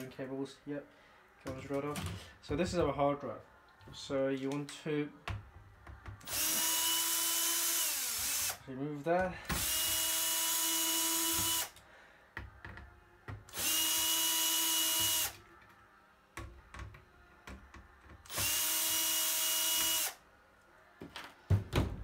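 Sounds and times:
cordless drill whirring: 0:06.2 - 0:08.6, 0:09.6 - 0:11.8, 0:13.5 - 0:15.4, 0:18.3 - 0:20.2.

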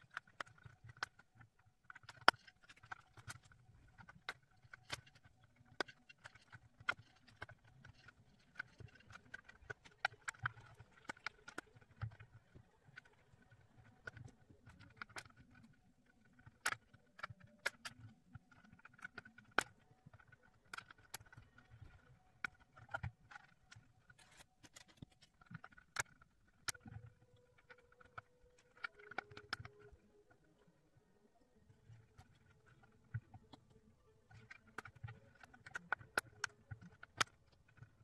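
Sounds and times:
plastic puzzle pieces clicking: 0:00.0 - 0:30.7, 0:31.6 - 0:38.0.

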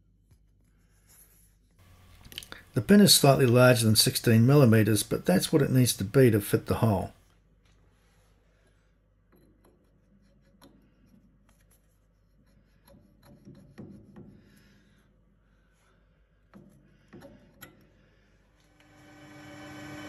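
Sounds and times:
lathe motor hum: 0:18.7 - 0:20.0.

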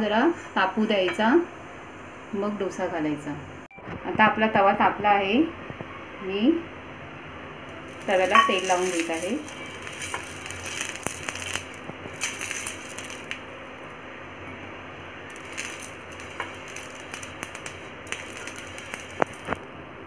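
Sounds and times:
oil sizzling on a hot griddle: 0:07.7 - 0:14.0, 0:15.2 - 0:19.7.

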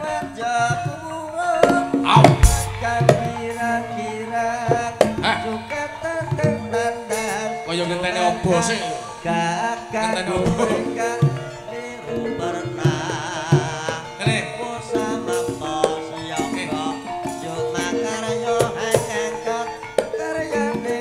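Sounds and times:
hand drum strokes: 0:01.6 - 0:07.4
ringing metallophone tones: 0:01.8 - 0:21.0
wavering melodic line: 0:02.4 - 0:04.9.

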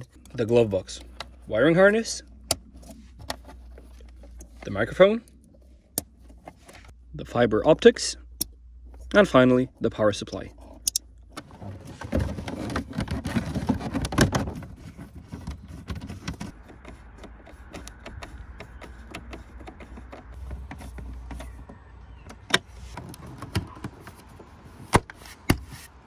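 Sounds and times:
hands rustling and knocking wiring: 0:10.6 - 0:26.0.

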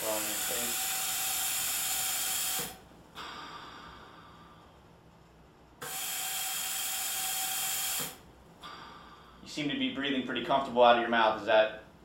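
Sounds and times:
ventilator hissing with whistle: 0:00.0 - 0:04.7, 0:05.8 - 0:09.6.

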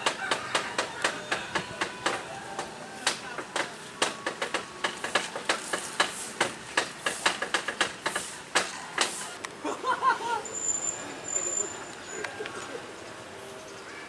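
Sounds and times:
train wheels clacking over rail joints: 0:00.0 - 0:09.3.

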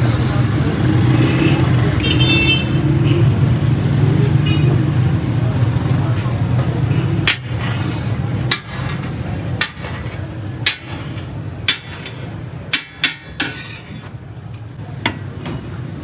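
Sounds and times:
metal spatula clanking on griddle: 0:07.2 - 0:14.2.

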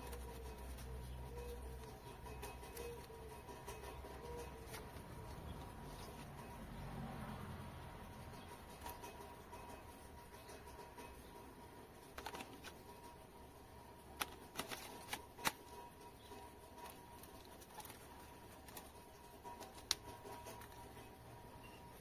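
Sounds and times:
sharp plastic clicks: 0:12.0 - 0:12.8, 0:14.1 - 0:15.9
handling plastic drone: 0:12.1 - 0:13.0, 0:14.2 - 0:15.9, 0:16.8 - 0:20.9.

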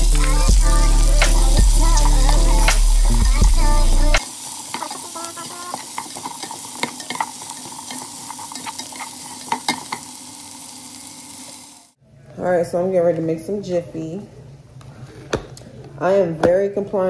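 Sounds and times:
background music: 0:00.0 - 0:04.2
bacon grease sizzling in a pan: 0:00.0 - 0:12.0.

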